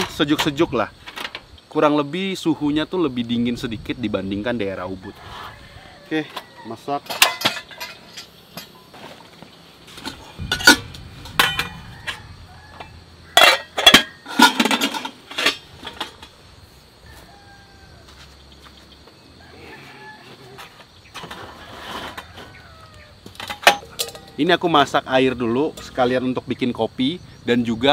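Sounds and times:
metal cookware clattering: 7.0s - 8.8s, 9.9s - 11.8s, 13.3s - 16.4s, 23.3s - 24.9s.

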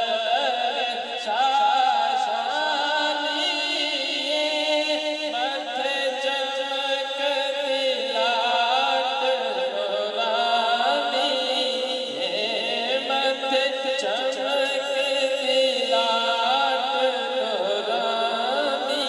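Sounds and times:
man singing devotional song: 0.0s - 19.0s.

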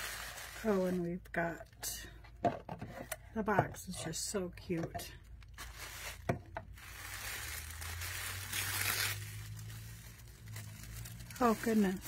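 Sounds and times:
tissue paper rustling: 0.0s - 1.2s, 5.5s - 12.0s.

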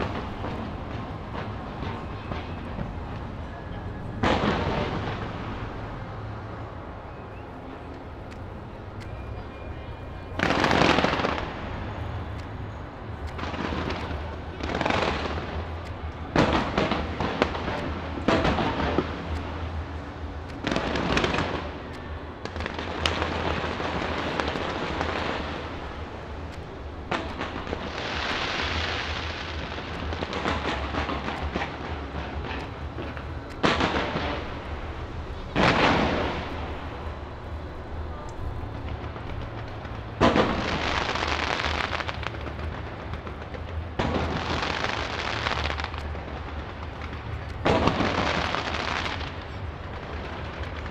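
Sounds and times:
fireworks booming: 0.0s - 3.5s, 4.1s - 6.4s, 10.4s - 12.0s, 13.2s - 20.0s, 20.6s - 37.2s, 38.8s - 50.9s
fireworks hissing crackle: 10.3s - 12.6s, 13.2s - 50.9s.

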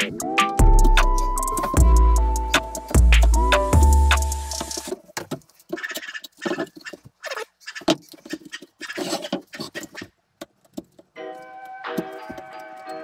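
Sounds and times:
music track: 0.0s - 4.9s, 11.2s - 13.0s
hand tools scraping wood: 5.4s - 10.1s
knife gouging wood: 5.6s - 10.1s.

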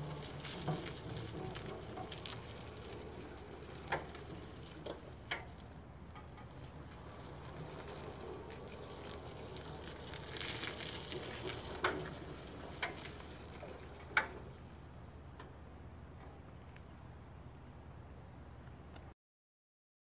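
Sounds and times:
electric cart hum: 0.0s - 18.6s.

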